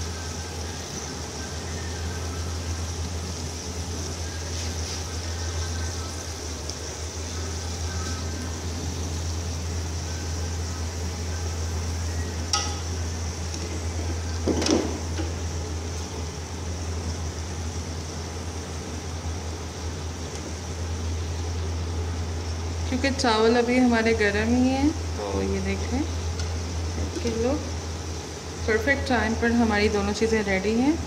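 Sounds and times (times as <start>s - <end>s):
low steady hum: 0.0s - 31.0s
sizzling hiss from pot: 0.0s - 31.0s
metal spoon knocking on pot: 12.5s - 12.9s.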